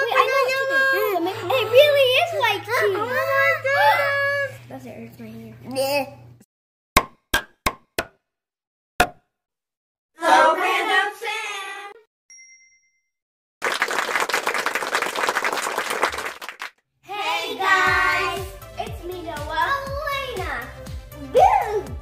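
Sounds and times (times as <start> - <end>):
high chime: 12.3 - 13.2
pinging dings: 12.3 - 13.2
applause-like noise: 13.6 - 16.8.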